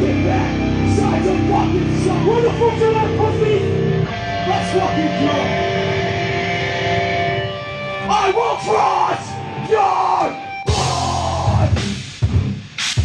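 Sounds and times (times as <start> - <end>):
distorted electric guitar chord: 0.0 - 12.5
heavy rock band playing: 0.0 - 13.0
person shouting: 8.0 - 11.8.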